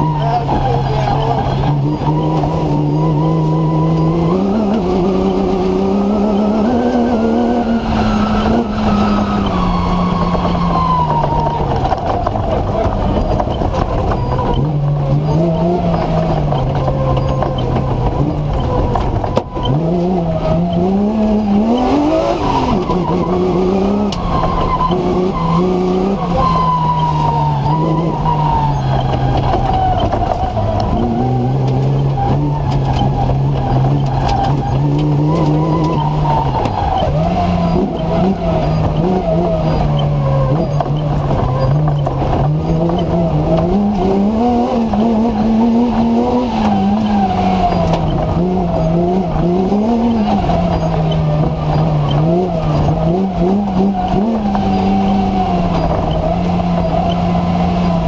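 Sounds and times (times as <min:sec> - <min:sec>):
racing car engine revving: 0:00.0 - 0:58.0.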